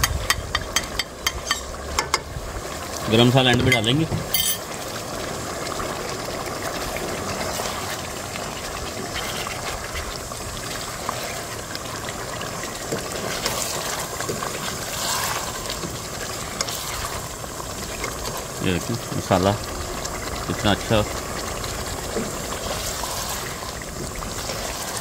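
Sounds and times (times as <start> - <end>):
spoon stirring pot: 0.0 - 2.3, 3.5 - 4.7
curry simmering and bubbling: 0.0 - 25.0.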